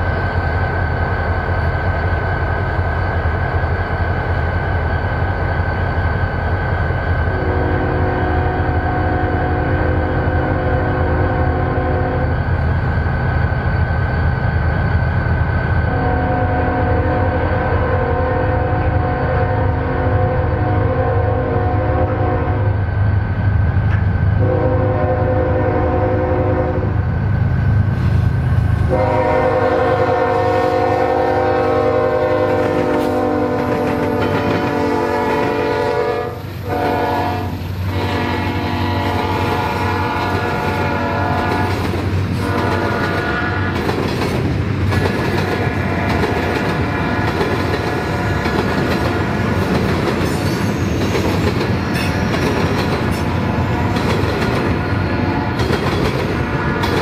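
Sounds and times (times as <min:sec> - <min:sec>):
train air horn chord: 0:07.3 - 0:12.3, 0:15.9 - 0:22.8, 0:24.4 - 0:27.0, 0:28.9 - 0:41.7, 0:42.4 - 0:43.8
train wheels clicking over rail joints: 0:23.0 - 0:24.5, 0:30.2 - 0:35.8, 0:39.4 - 0:57.0.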